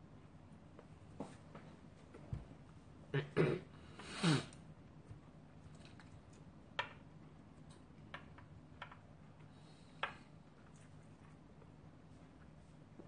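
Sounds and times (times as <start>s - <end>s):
faint low hum: 0.0s - 13.0s.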